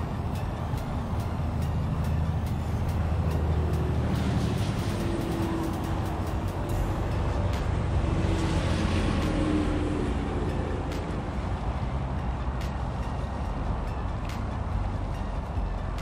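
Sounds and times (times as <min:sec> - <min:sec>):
road traffic rumble: 0:00.0 - 0:16.0
vehicle engine passing: 0:00.0 - 0:16.0.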